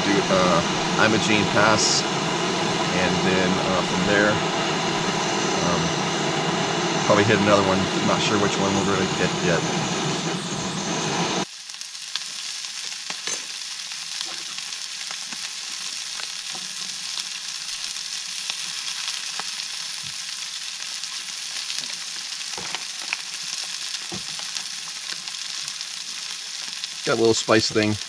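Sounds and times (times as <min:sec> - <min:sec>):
food sizzling in a pan: 0:11.4 - 0:28.0.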